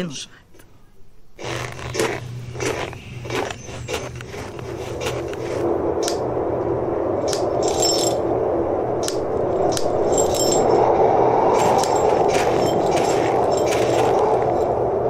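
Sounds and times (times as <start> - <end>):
metal climbing gear clinking: 1.4 - 5.6, 7.6 - 8.2, 9.0 - 10.9, 11.5 - 14.8
steady rushing noise: 2.1 - 15.0.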